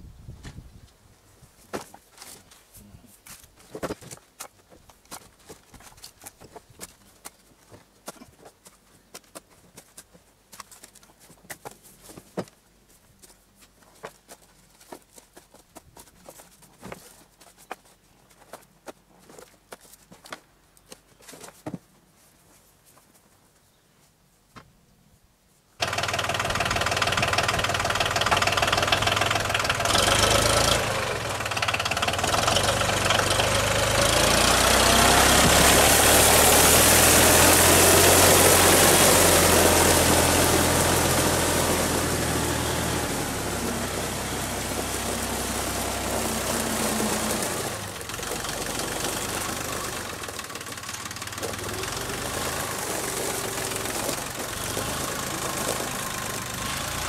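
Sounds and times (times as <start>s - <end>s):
tractor engine running: 25.8s - 57.0s.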